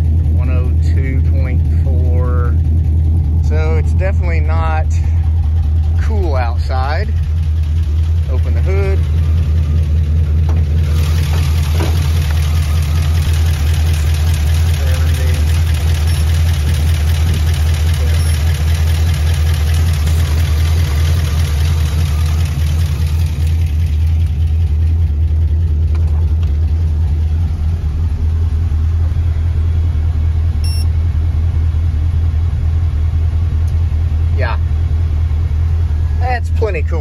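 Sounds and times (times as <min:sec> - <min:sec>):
truck engine idling: 0:00.0 - 0:37.0.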